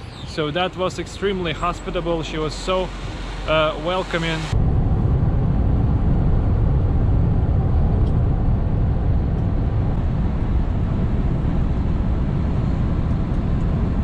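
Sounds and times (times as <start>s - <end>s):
tyres on road rumble: 0.0s - 5.0s
truck engine rumble: 0.0s - 14.0s.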